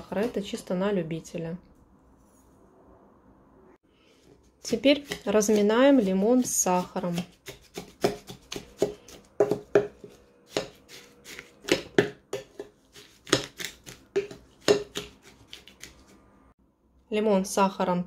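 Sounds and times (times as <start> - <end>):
wooden spatula knocking on glass bowl: 7.8 - 10.7.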